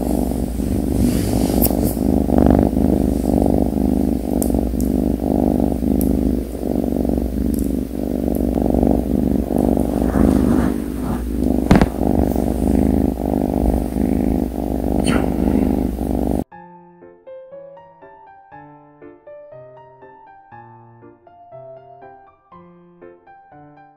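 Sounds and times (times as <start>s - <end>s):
kitten purring: 0.0s - 16.4s
sharp knock: 11.6s - 12.5s.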